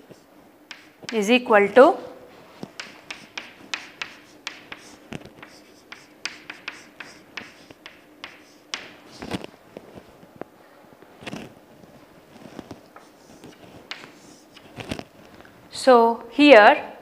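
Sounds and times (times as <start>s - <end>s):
chalk tapping on chalkboard: 0.7s - 1.2s, 2.6s - 9.4s, 13.0s - 14.8s.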